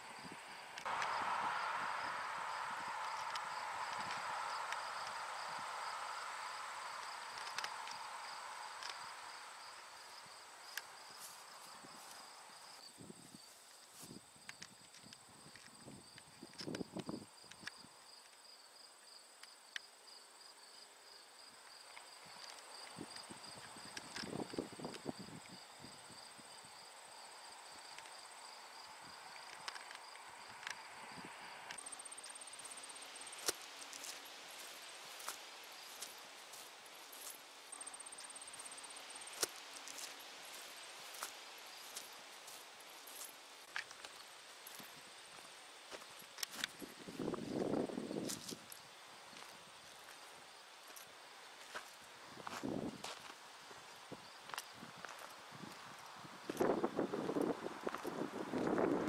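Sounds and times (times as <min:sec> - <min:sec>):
insects chirring: 0:00.0 - 0:59.0
small clicks: 0:07.3 - 0:08.0.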